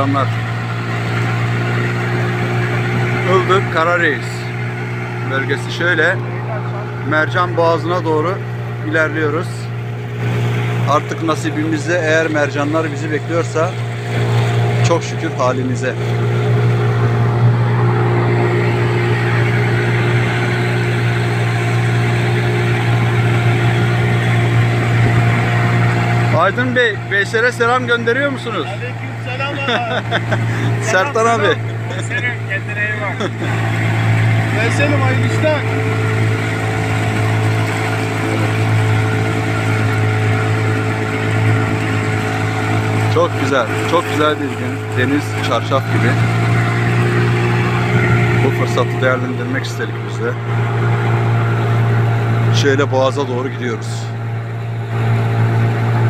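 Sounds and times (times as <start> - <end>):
boat engine droning: 0.0 - 56.0
steady whine: 0.0 - 56.0
water rushing past hull: 0.0 - 56.0.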